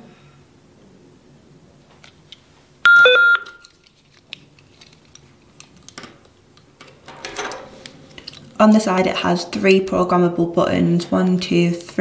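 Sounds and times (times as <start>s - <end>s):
radio power-on chime: 2.9s - 3.6s.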